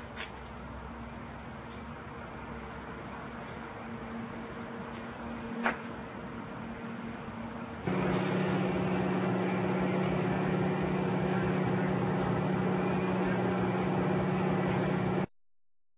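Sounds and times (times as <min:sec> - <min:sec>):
heavy engine humming: 0:07.9 - 0:15.3.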